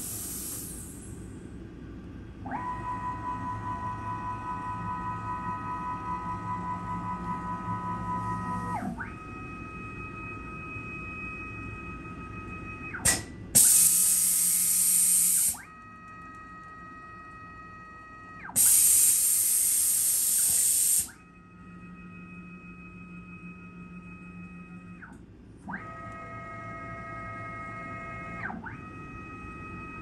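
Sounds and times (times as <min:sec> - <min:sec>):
compressed air hiss: 0:00.0 - 0:01.1, 0:13.6 - 0:15.6, 0:18.6 - 0:21.1.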